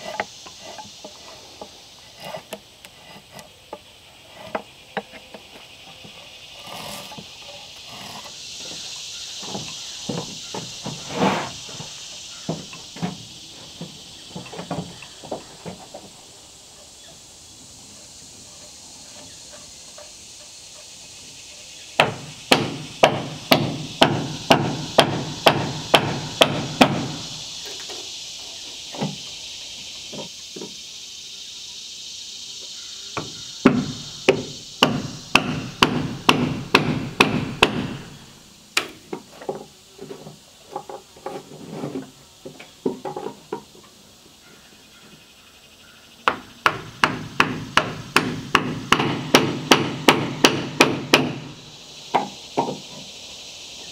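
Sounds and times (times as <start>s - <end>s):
hammer striking wooden boards: 22.0s - 27.2s, 33.2s - 38.1s, 46.3s - 51.5s.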